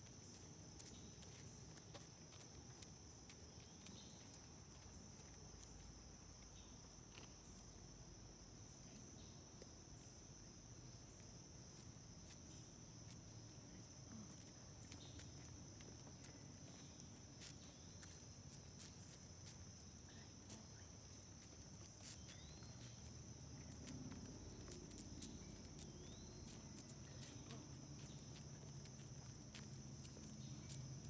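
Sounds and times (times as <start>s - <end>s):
insect trilling: 18.8s - 31.0s.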